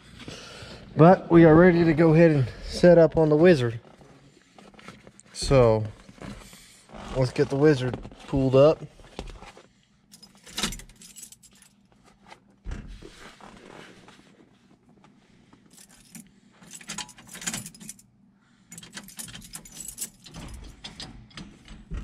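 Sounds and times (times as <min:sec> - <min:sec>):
car keys jangling: 0:10.1 - 0:11.8, 0:15.8 - 0:18.0, 0:18.7 - 0:20.9.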